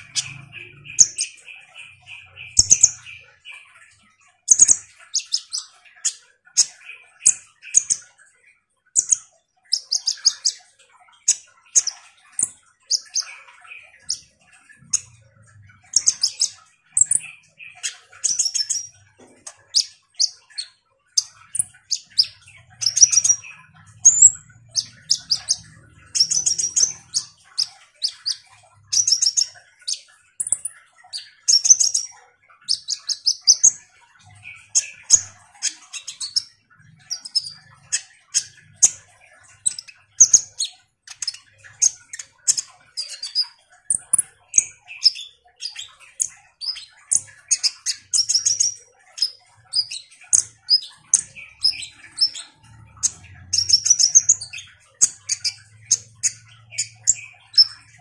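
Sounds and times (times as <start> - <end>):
sunbird singing high chirps: 11.3 - 32.1.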